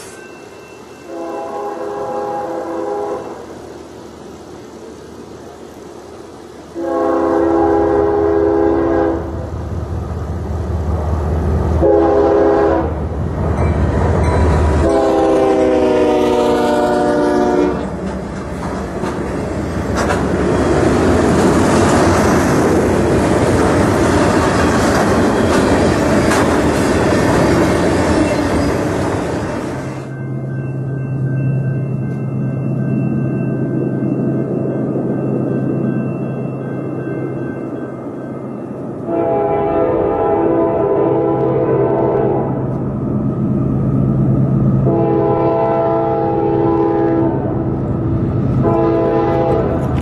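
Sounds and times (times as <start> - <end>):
locomotive engine drone: 0.0 - 50.0
train air horn blasts: 1.0 - 3.6, 6.7 - 9.5, 11.8 - 13.0, 14.7 - 18.0, 39.0 - 42.7, 44.8 - 47.6, 48.6 - 49.9
freight cars rumbling and clattering: 17.8 - 29.9.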